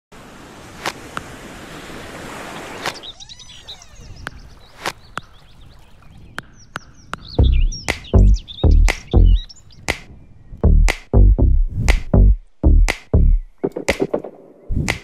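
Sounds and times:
faint bird chirps: 2.6s - 10.7s
sharp clicks: 7.8s - 8.1s, 8.8s - 9.2s, 12.9s - 15.0s.

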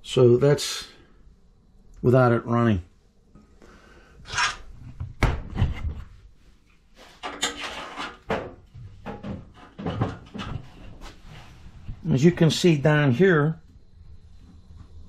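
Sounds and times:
knocks and scrapes on metal pipe: 7.2s - 11.0s.

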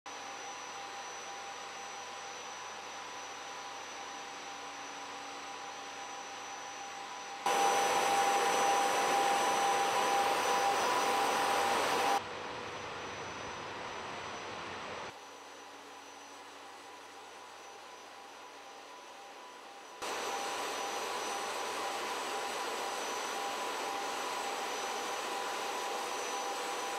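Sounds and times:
faint steady tones: 7.5s - 12.2s.

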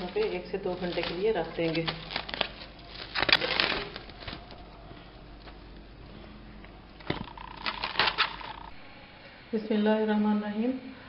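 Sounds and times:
cling film crinkling: 0.0s - 5.9s, 7.0s - 8.7s.

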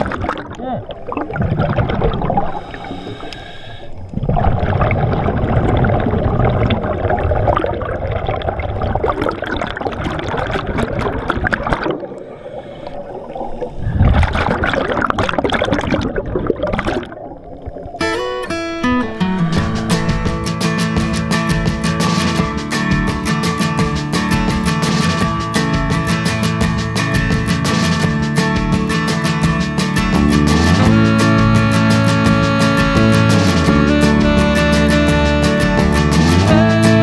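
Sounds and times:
underwater rushing and gurgling water: 0.0s - 18.2s.

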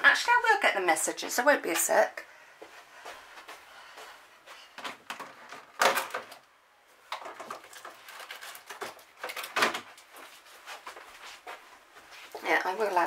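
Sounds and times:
rustling and clatter: 7.1s - 13.0s.

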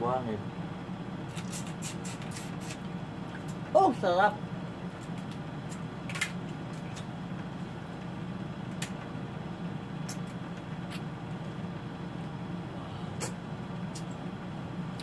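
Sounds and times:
low background hum: 0.0s - 15.0s
clicks and smacks of eating crab: 10.0s - 11.0s.

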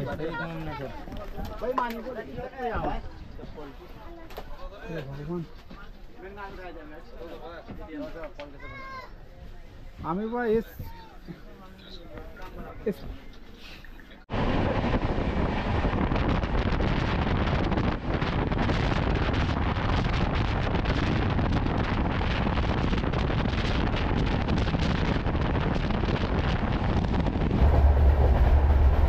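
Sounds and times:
wind buffeting microphone: 14.3s - 29.0s
train running noise: 27.0s - 29.0s.

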